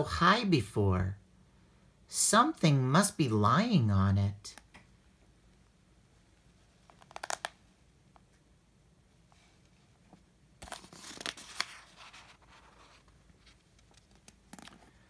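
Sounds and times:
book pages turning: 6.8 - 7.6, 10.1 - 15.0.

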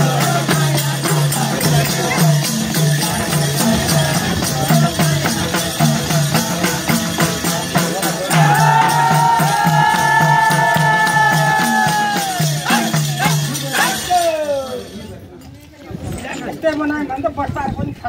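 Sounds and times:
hand drums beating: 0.0 - 14.4
jingling percussion: 0.0 - 16.9.

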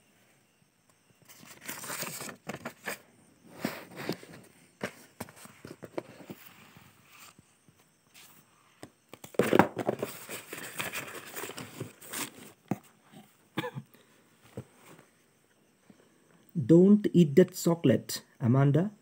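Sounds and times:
book pages turning and rustling: 1.2 - 3.0, 3.6 - 7.4, 9.1 - 12.9.

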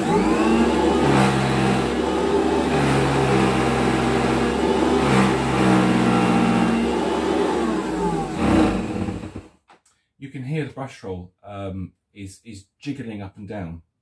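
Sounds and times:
upright vacuum cleaner running: 0.0 - 9.5.

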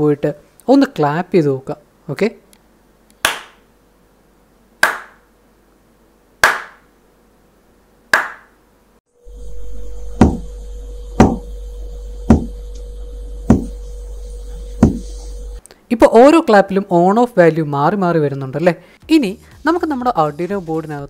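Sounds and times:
steady low hum and hiss: 0.0 - 21.0
hand claps: 3.2 - 3.6, 4.8 - 5.2, 6.4 - 6.8, 8.1 - 8.5.

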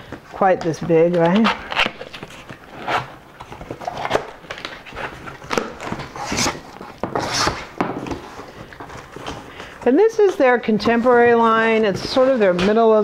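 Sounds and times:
cardboard scraping and rustling: 0.6 - 13.0
knife slitting cardboard box: 5.5 - 7.7.

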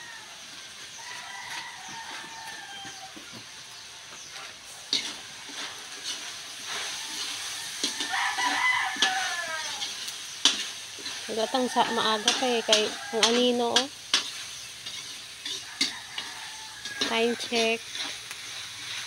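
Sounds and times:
rooster crowing: 0.0 - 3.4, 6.7 - 10.1, 11.1 - 13.5, 15.5 - 17.8
light sizzle: 0.0 - 19.0
metal spatula scraping a wok: 4.2 - 19.0.

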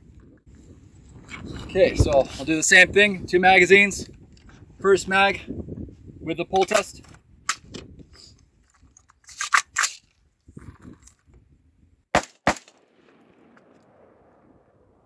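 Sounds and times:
rifle magazine clacking in: 8.7 - 10.1
rifle shots with echo: 12.1 - 15.0.

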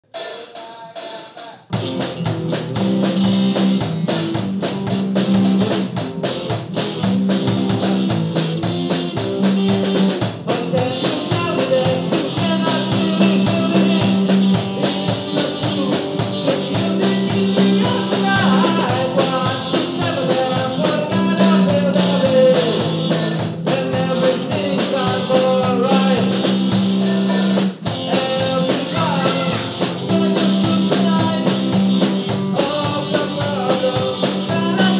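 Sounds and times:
man singing: 0.0 - 1.8, 10.3 - 34.9
rock band playing: 0.0 - 34.9.

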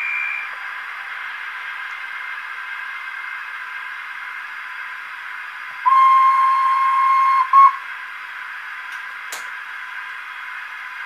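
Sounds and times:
steam train whistle: 5.8 - 7.8.

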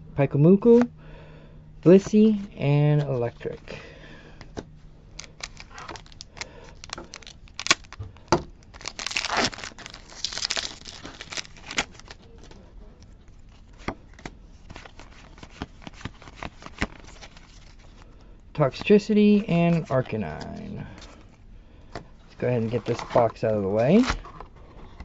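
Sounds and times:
foil wrapper crinkling and tearing: 5.1 - 12.6, 14.7 - 18.0
trading cards clicking and rustling: 5.2 - 8.0, 8.6 - 12.6, 13.6 - 17.8.

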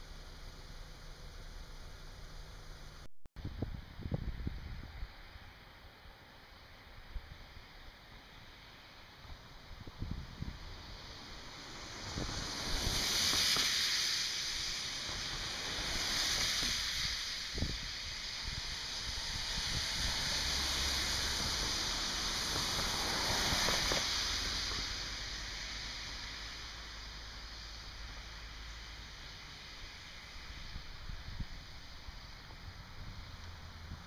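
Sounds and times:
tyres hissing on wet road: 0.0 - 3.1, 3.8 - 34.0
cars driving past: 8.6 - 34.0.

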